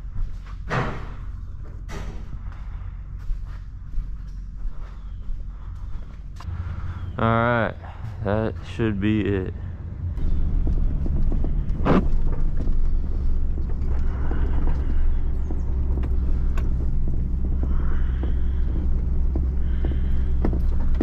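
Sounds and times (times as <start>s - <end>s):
truck engine and road rumble: 0.0s - 21.0s
light knocks and rattles: 10.0s - 21.0s.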